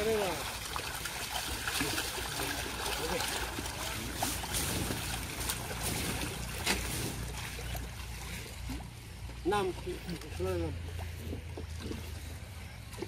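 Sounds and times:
splashing in shallow water: 0.0s - 13.0s
steady low rumble: 3.5s - 9.5s.

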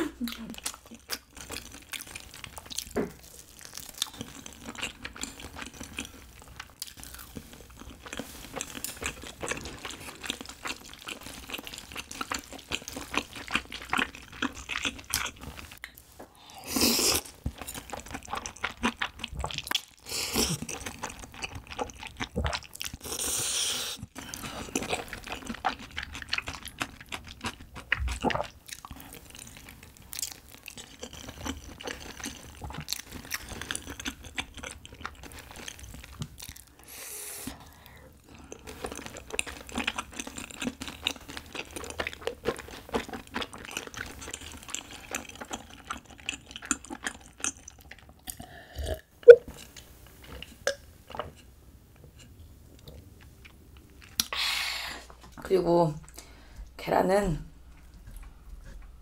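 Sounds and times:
wet chewing and smacking: 0.2s - 16.0s, 17.2s - 23.2s, 23.9s - 36.8s, 38.2s - 48.5s, 49.2s - 54.3s, 57.6s - 59.0s.

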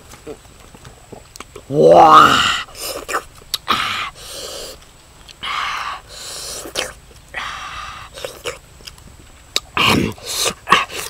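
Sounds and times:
lip smacks and chewing clicks: 1.1s - 1.7s, 2.8s - 3.7s, 8.1s - 11.0s
man slurping: 1.6s - 8.7s, 9.6s - 11.0s.

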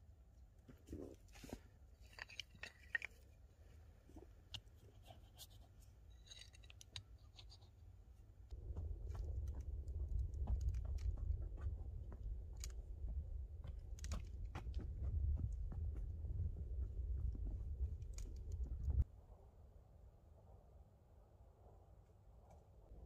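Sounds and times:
stones and gravel crunching: 0.7s - 3.4s, 6.1s - 7.6s, 8.5s - 19.0s
wind rumble on microphone: 8.5s - 19.0s.

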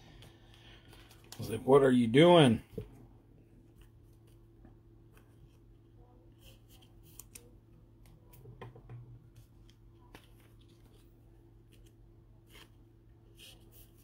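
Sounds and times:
low electrical hum: 0.0s - 14.0s
trading cards rustling: 0.2s - 1.6s.

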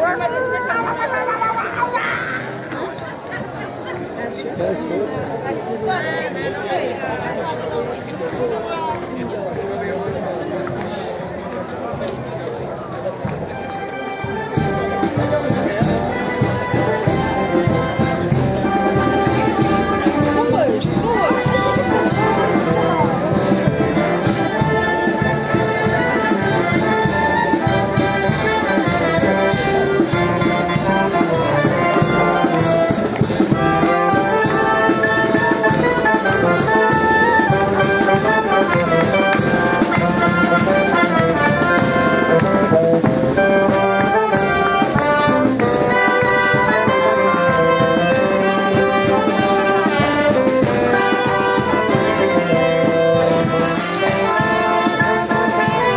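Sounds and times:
brass band playing dance tune: 13.2s - 55.9s
drum: 14.5s - 55.9s.

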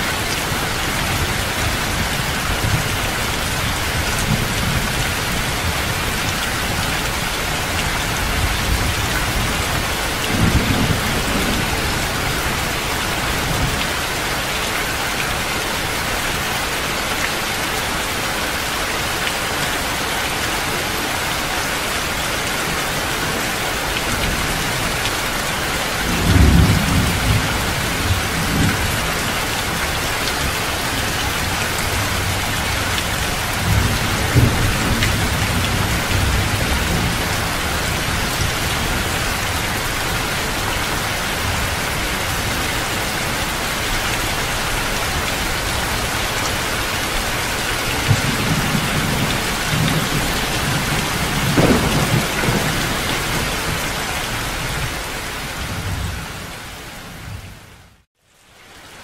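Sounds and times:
heavy rain pouring: 0.0s - 59.0s
thunder rumbling: 47.8s - 56.5s.

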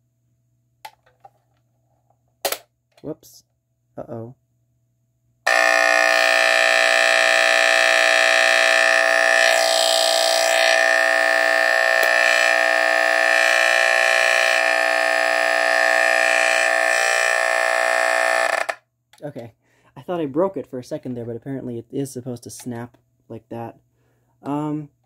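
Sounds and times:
smoke detector horn buzzing: 5.5s - 18.8s.

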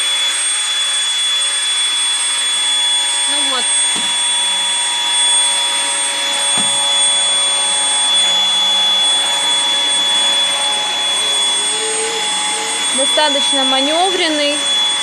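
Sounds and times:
stick vacuum motor whine: 0.0s - 15.0s.

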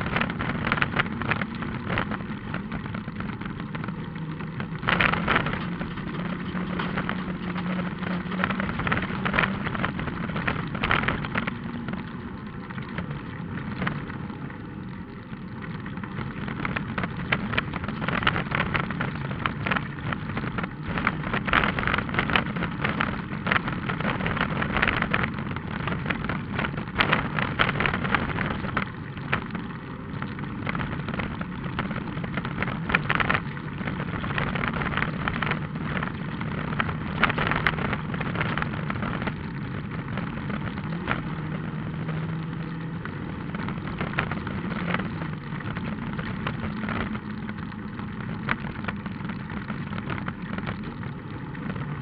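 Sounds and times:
stones clattering under car: 0.0s - 11.9s
car engine hum from inside: 0.0s - 52.0s.

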